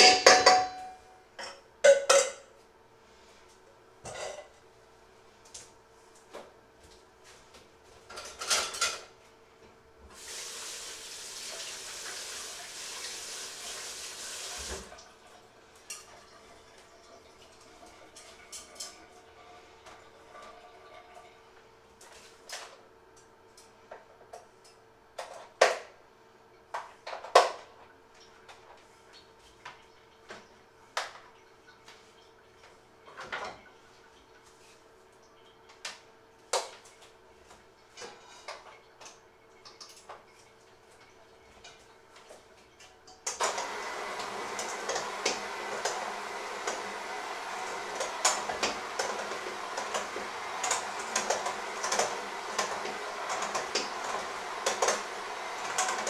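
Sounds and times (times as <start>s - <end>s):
utensils clinking on steel bowls: 0.0s - 2.4s
electric mixer running: 43.3s - 56.0s.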